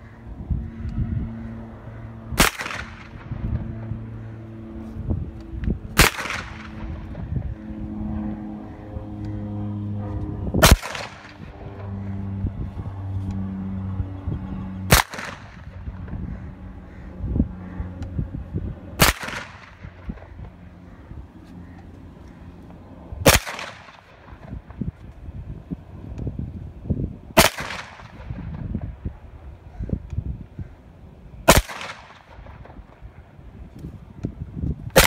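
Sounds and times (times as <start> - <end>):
low steady hum: 0.0 - 35.0
gunshots with echo: 2.4 - 3.2, 6.0 - 6.8, 10.6 - 11.5, 14.9 - 15.8.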